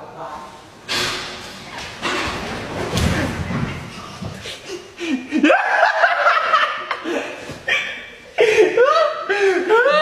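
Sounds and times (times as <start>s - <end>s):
person snickering: 4.4s - 6.0s.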